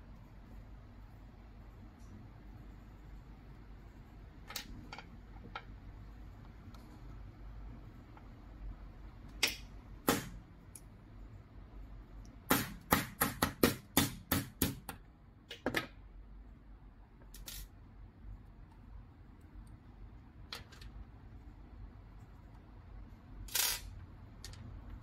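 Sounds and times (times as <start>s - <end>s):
small parts clicking together: 17.2s - 17.7s, 23.5s - 25.0s.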